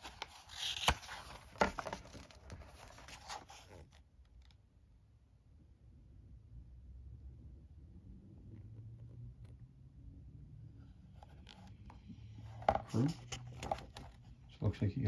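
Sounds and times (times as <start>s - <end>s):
paper rustling: 0.0s - 4.0s, 12.5s - 14.4s
book pages turning: 0.0s - 4.6s, 11.1s - 14.4s.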